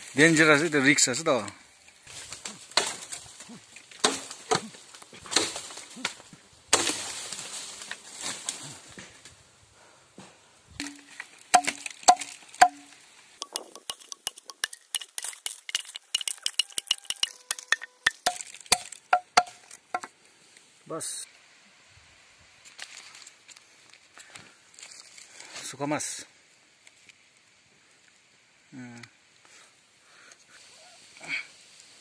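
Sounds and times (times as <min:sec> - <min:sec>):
light clinking taps: 0:13.4 - 0:18.4.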